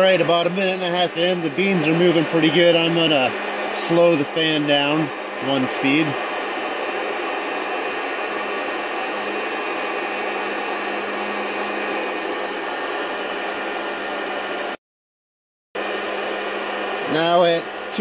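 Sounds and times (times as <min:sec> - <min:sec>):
coffee roaster fan whooshing: 0:00.0 - 0:14.8, 0:15.8 - 0:18.0.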